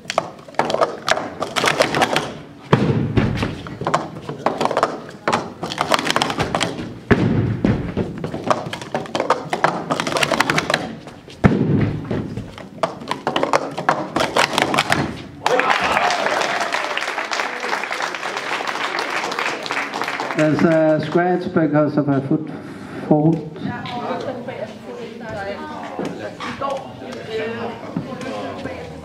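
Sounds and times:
plastic cups clattering: 0:00.0 - 0:02.4, 0:03.6 - 0:06.8, 0:08.2 - 0:11.0, 0:12.3 - 0:15.1
heavy thumps: 0:00.0 - 0:15.4.

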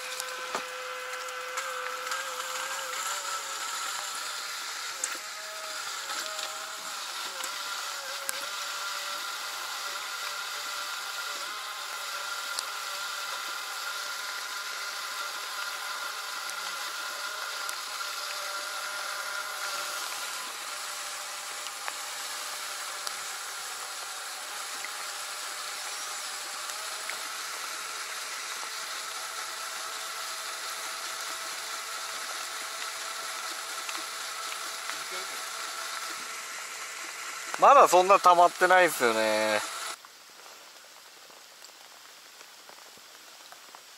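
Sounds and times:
faint mechanical hum: 0:00.0 - 0:40.0
rain falling on water: 0:39.9 - 0:43.9.

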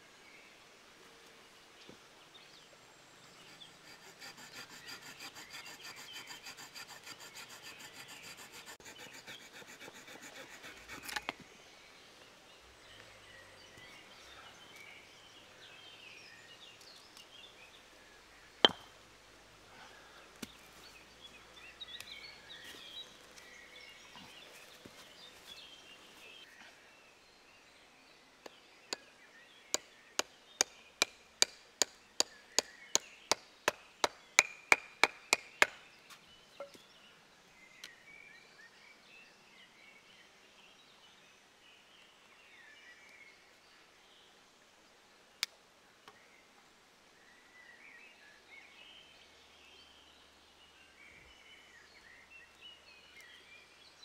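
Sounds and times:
knife saw cutting wood: 0:03.4 - 0:11.4.

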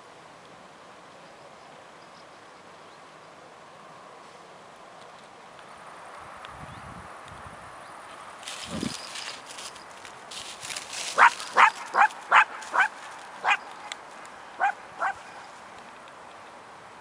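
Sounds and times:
dog barking: 0:11.2 - 0:13.6, 0:14.6 - 0:15.2.

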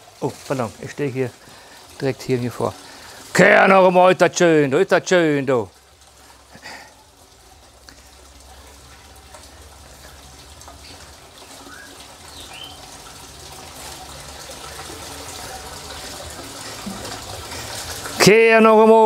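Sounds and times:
water pouring and splashing: 0:00.0 - 0:19.0
bird chirps: 0:11.6 - 0:12.8.

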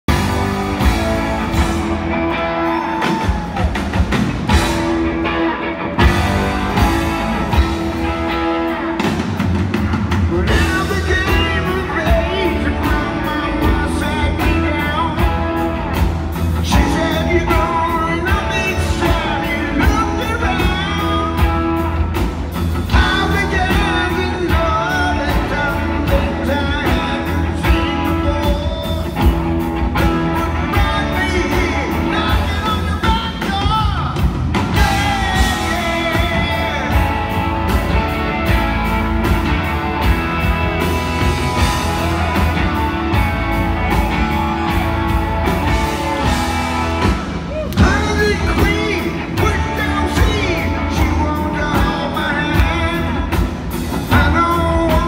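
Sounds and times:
rock band playing: 0:00.0 - 0:55.0
man singing: 0:10.1 - 0:22.2, 0:22.8 - 0:38.1, 0:44.0 - 0:55.0.

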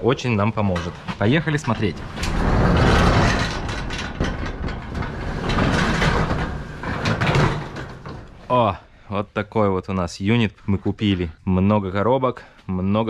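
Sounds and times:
metal roll-up door rumbling: 0:00.0 - 0:08.6.

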